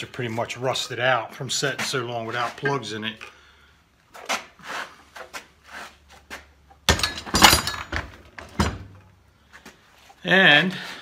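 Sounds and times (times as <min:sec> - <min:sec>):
metal clanks and thunks: 0:06.8 - 0:09.1.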